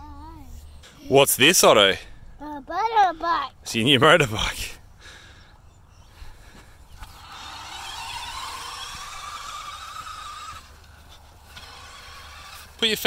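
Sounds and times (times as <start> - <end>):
electric motor whining: 6.8 - 13.0.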